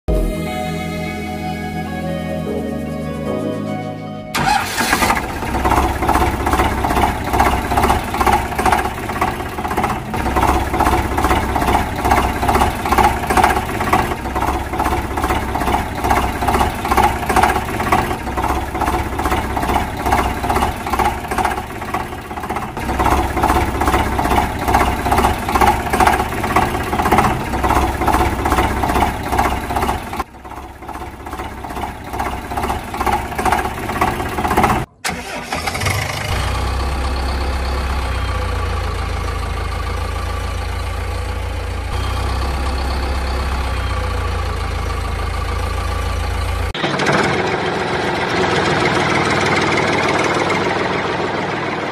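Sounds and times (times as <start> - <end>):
engine pulsing rhythmically: 0.1 - 35.7, 36.3 - 51.9
steady engine low hum: 4.4 - 34.9.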